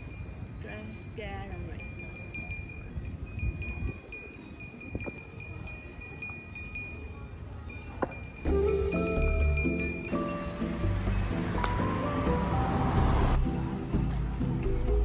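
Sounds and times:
wind chimes tinkling: 0:00.0 - 0:15.0.

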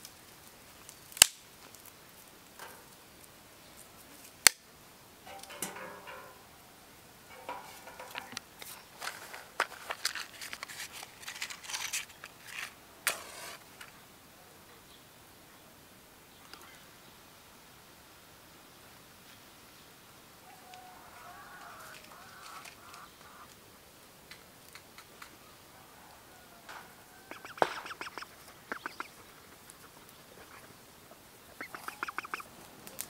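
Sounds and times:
dry stick snapping: 0:00.9 - 0:01.9, 0:04.4 - 0:04.6
rustling of cloth and sticks: 0:07.2 - 0:14.0, 0:21.6 - 0:25.4.

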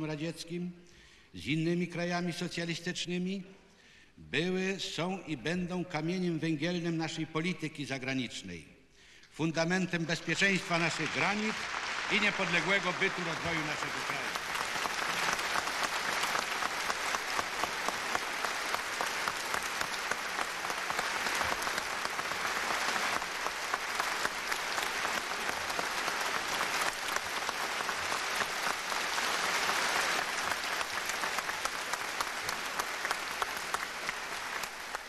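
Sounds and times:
audience applauding: 0:10.4 - 0:35.0.

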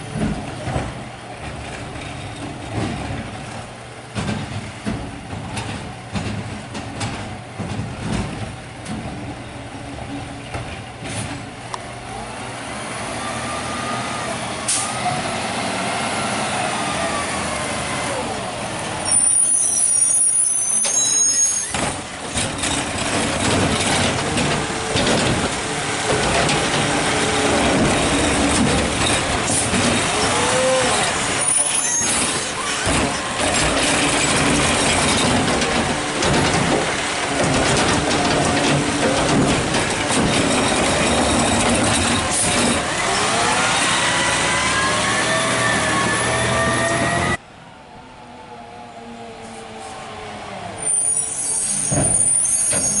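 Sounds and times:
garbage truck engine: 0:00.0 - 0:53.0
air brake squeal: 0:19.0 - 0:21.8, 0:30.2 - 0:32.8, 0:50.8 - 0:53.0.

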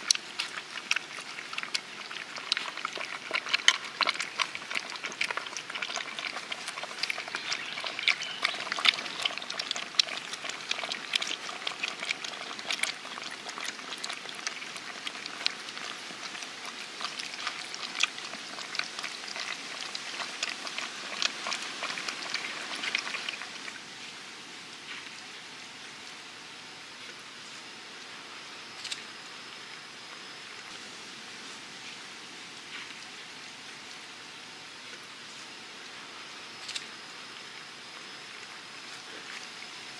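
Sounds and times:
puppies lapping and eating: 0:00.0 - 0:25.8, 0:36.7 - 0:39.9.

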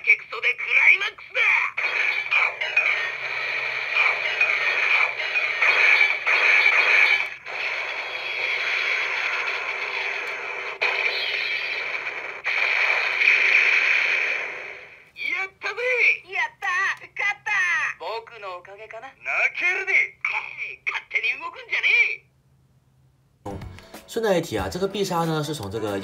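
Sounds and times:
recorded voice lines from toy speaker: 0:00.0 - 0:12.2, 0:15.2 - 0:22.3
electronic toy sound effects: 0:00.0 - 0:14.9.

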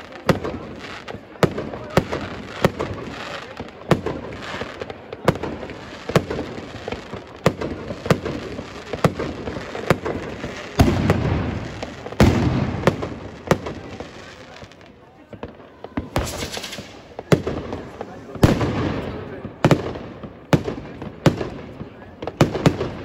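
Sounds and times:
fireworks bursting: 0:00.0 - 0:23.0
fireworks hiss: 0:16.0 - 0:20.1.

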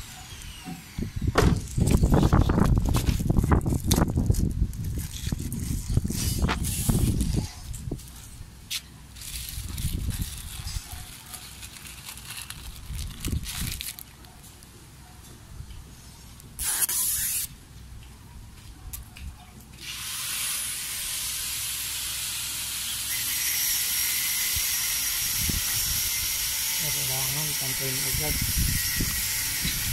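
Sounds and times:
tape liner peeling hiss: 0:01.6 - 0:07.5, 0:08.7 - 0:14.2, 0:16.3 - 0:17.6, 0:19.8 - 0:25.0
short tearing hiss: 0:16.6 - 0:17.5.

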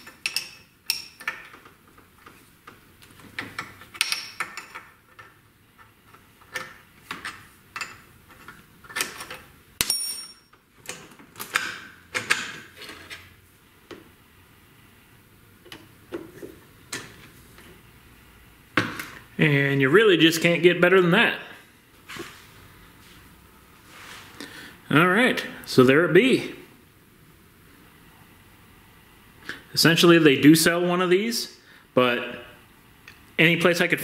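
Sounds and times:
metal clicks and clinks: 0:00.0 - 0:01.7.

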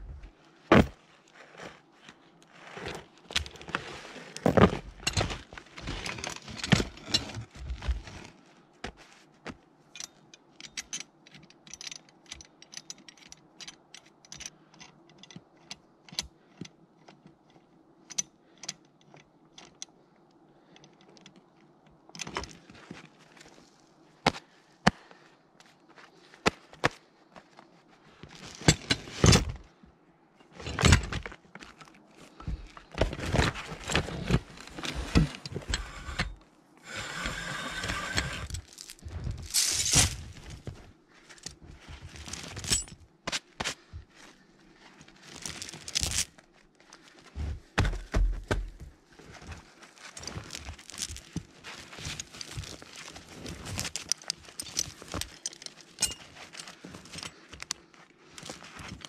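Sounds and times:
chain and hooks clanking: 0:02.8 - 0:08.0, 0:09.9 - 0:19.9, 0:28.4 - 0:29.6, 0:30.4 - 0:40.8, 0:41.4 - 0:43.1, 0:50.2 - 0:57.7
footsteps crunching in snow: 0:38.6 - 0:42.6.

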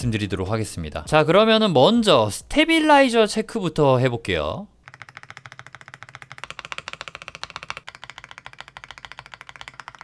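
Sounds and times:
mechanical keyboard keys clacking: 0:04.8 - 0:10.0.

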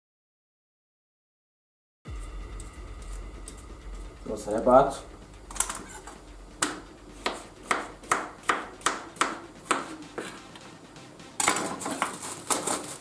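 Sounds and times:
knife chopping on plastic board: 0:06.6 - 0:10.4
plastic packaging crinkling: 0:11.7 - 0:13.0.

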